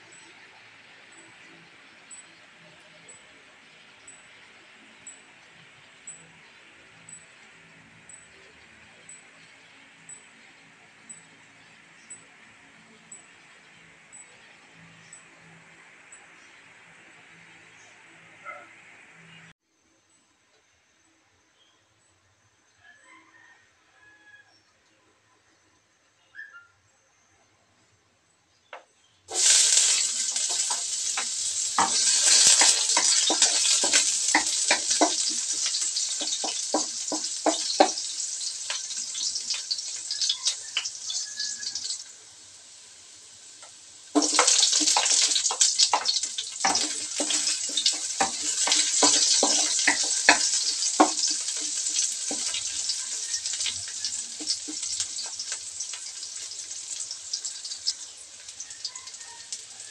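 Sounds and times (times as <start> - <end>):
garlic sizzling in hot oil: 29.3 - 59.9
onion sizzling in oil: 29.3 - 59.9.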